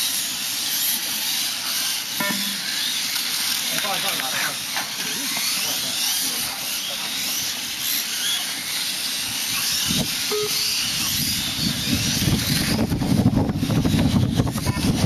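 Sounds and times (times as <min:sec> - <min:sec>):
electric motorcycles whining: 0:00.0 - 0:15.0
wind rumbling on microphone: 0:09.5 - 0:15.0.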